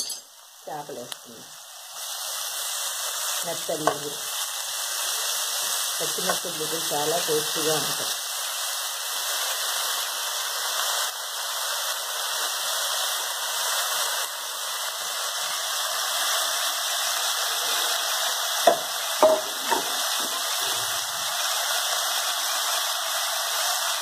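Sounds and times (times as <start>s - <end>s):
fish sizzling in oil: 0.0s - 24.0s
spatula knocking against pan: 18.7s - 20.3s.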